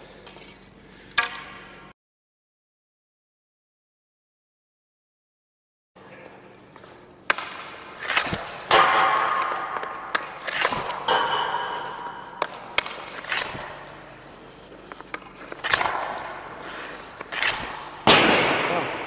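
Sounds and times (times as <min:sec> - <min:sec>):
hockey stick striking pucks: 0:01.1 - 0:01.6, 0:06.8 - 0:19.0
pucks hitting boards: 0:06.8 - 0:19.0.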